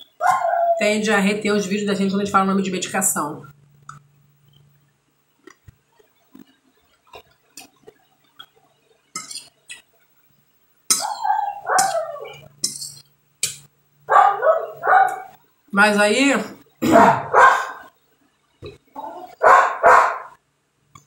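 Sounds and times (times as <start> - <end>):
dog barking: 0.2 - 0.8, 11.0 - 12.4, 14.1 - 15.3, 16.8 - 17.9, 19.4 - 20.4
fork clinking on glass plate: 10.9 - 11.2, 11.8 - 13.6.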